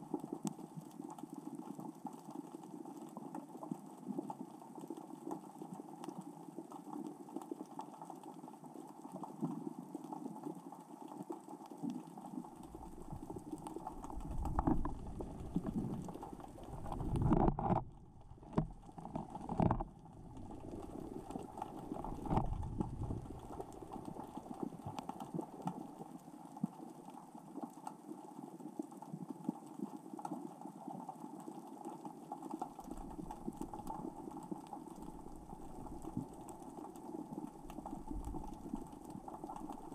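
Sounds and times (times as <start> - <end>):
underwater rocks clattering: 12.6 - 25.2, 35.0 - 39.9
low underwater surges: 12.7 - 18.9, 20.0 - 24.8.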